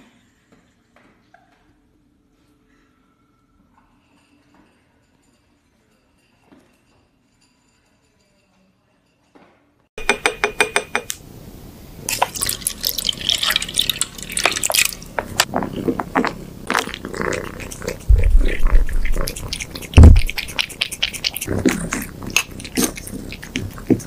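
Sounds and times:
low thump: 0:20.0 - 0:20.4.

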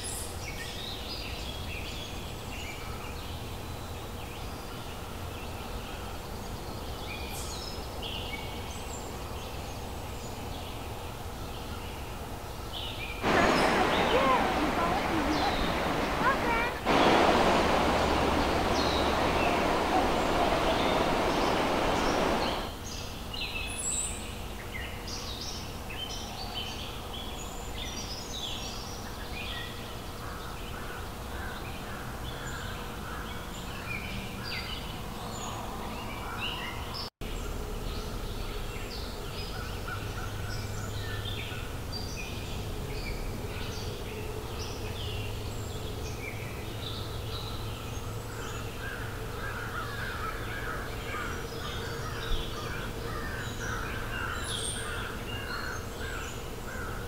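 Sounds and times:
birds chirping and calling: 0:13.2 - 0:22.7
rushing water: 0:13.2 - 0:22.8.

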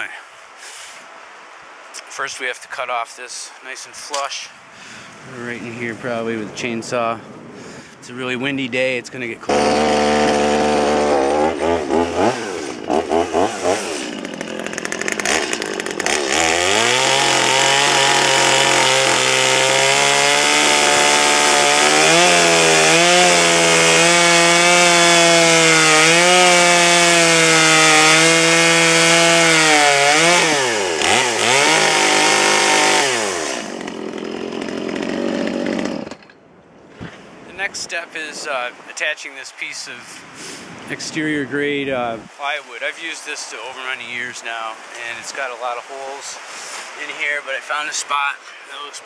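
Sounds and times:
chainsaw cutting wood: 0:09.5 - 0:36.4.

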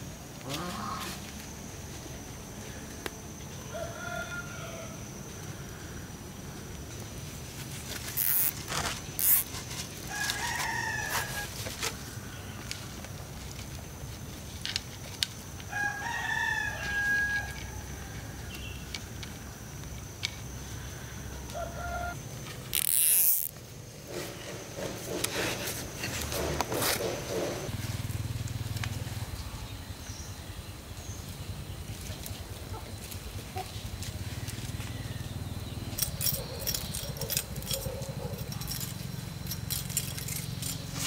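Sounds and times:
rooster crowing: 0:03.6 - 0:05.2, 0:10.1 - 0:11.7, 0:15.7 - 0:18.6, 0:21.2 - 0:22.2.

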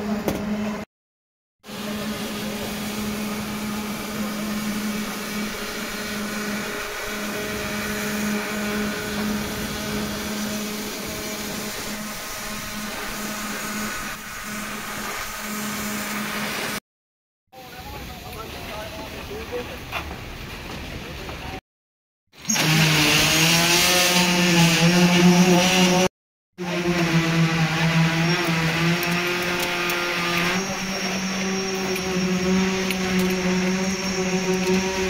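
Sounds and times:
machine motor humming: 0:01.7 - 0:16.8.

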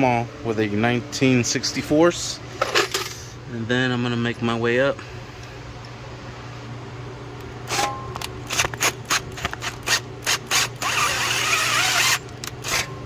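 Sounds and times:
cordless drill boring into plastic: 0:08.5 - 0:12.9.

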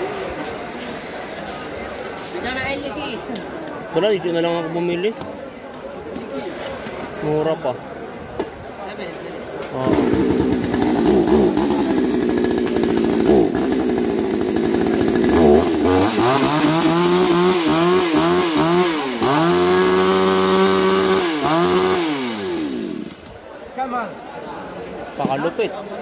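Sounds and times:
small petrol engine revving: 0:09.7 - 0:23.3.

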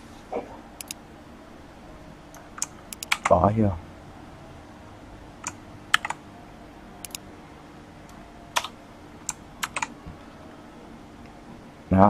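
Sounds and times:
faint steady hum: 0:00.0 - 0:12.0
keyboard typing: 0:02.3 - 0:03.4, 0:05.4 - 0:06.2, 0:08.5 - 0:09.9.

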